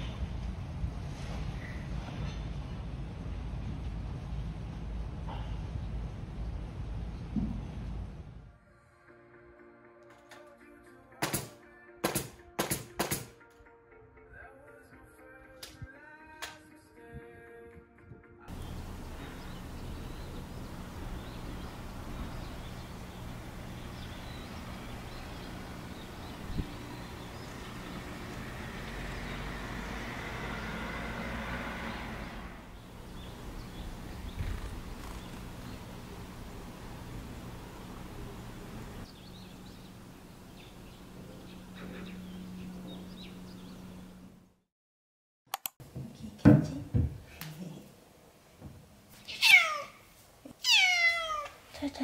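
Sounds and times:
low hum: 18.5 - 44.6
short clicks: 45.5 - 45.8.

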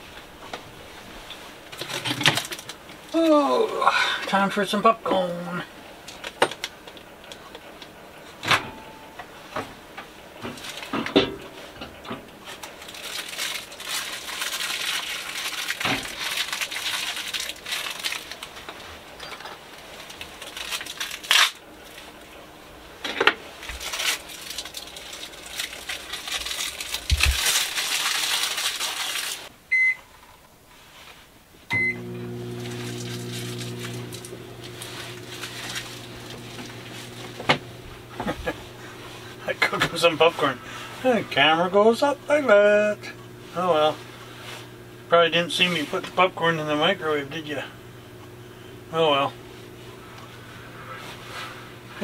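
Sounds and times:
microwave running hum: 0.0 - 27.7, 31.6 - 52.0
papery rustling and clicks: 1.8 - 2.8, 12.4 - 19.0, 19.7 - 22.2, 23.6 - 29.5, 32.8 - 37.4
microwave keypad beeps: 29.7 - 30.0, 31.7 - 32.0.

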